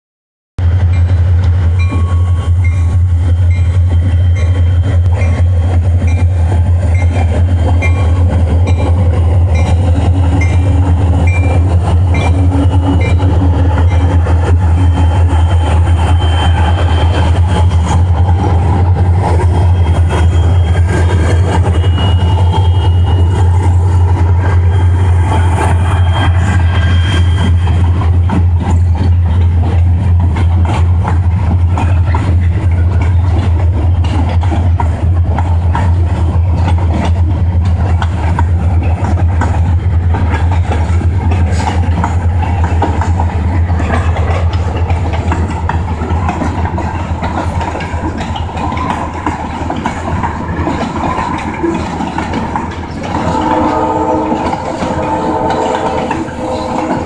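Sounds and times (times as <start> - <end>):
freight train rolling past: 0.6 - 57.0
high wheel squeals: 10.4 - 28.2, 52.9 - 57.0
low drone: 53.0 - 57.0.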